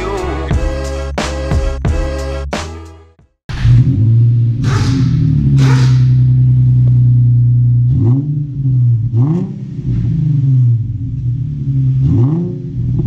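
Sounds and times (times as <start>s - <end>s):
car exhaust idling and revving: 3.5s - 13.0s.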